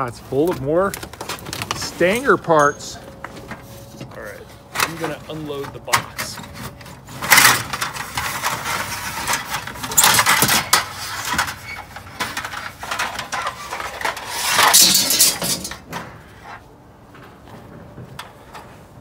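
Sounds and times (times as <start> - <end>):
cardboard box rustling: 0.2 - 2.4
metal pieces clattering and scraping: 4.8 - 16.6.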